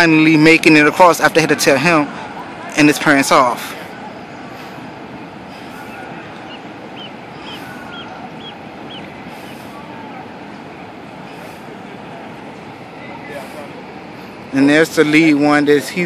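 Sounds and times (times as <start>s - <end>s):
outdoor rumble and hiss: 0.0s - 16.0s
bird chirping: 5.8s - 9.6s.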